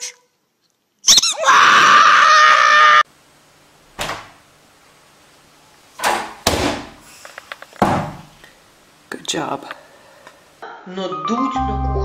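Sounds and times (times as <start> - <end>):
squeaky dog toy squealing: 1.0 - 1.5.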